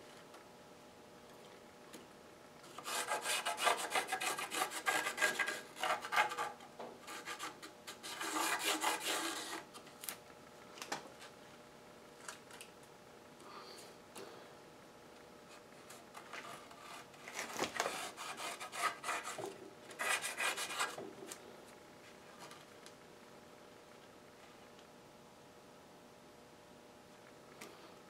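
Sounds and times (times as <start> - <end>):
pencil scratching on wood: 2.8 - 9.6, 17.8 - 21.0.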